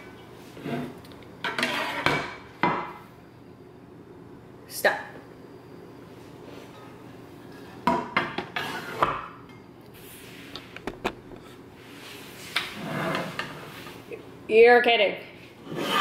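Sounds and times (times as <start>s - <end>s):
rubbing scrape: 1.6s - 2.1s, 11.8s - 14.0s, 15.6s - 16.0s.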